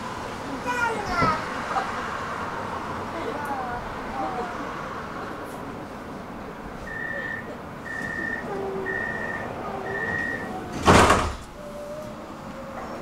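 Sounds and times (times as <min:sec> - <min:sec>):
tram doors shutting: 0:00.0 - 0:02.0, 0:03.4 - 0:13.0
high warning beeps: 0:06.9 - 0:10.5.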